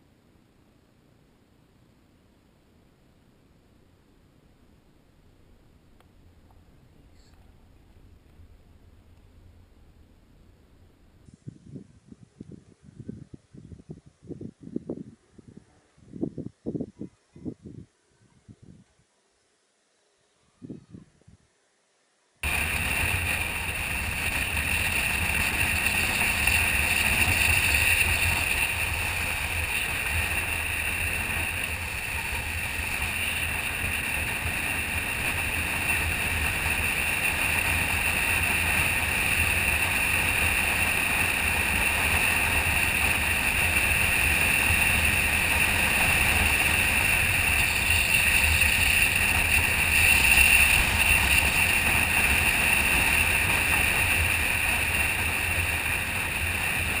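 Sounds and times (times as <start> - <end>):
wind rushing over microphone: 11.3 - 18.9.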